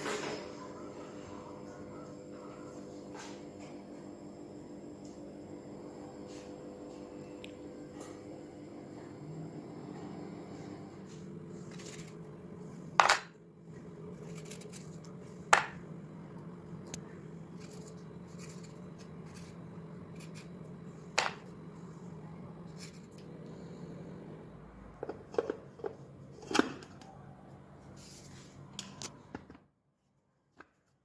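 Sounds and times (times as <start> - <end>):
low hum: 7.0 - 28.7.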